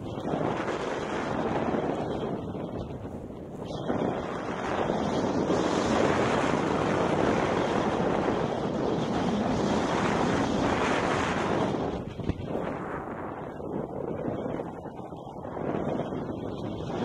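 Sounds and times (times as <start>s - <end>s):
wind rushing over microphone: 0.0s - 17.0s.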